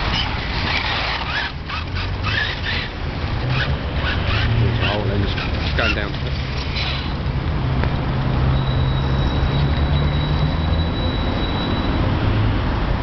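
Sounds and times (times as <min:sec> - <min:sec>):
road traffic engine hum: 0:00.0 - 0:13.0.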